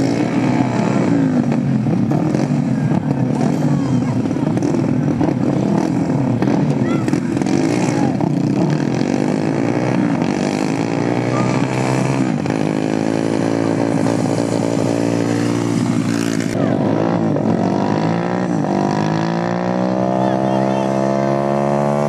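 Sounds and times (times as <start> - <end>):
kart engines revving: 0.0 - 22.0.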